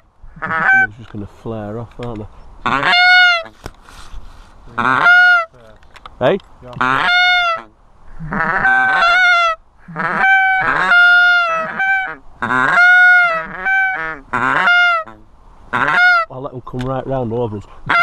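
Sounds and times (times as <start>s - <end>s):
goose honks: 0.4s - 0.9s, 2.6s - 3.5s, 4.8s - 5.6s, 6.7s - 16.3s.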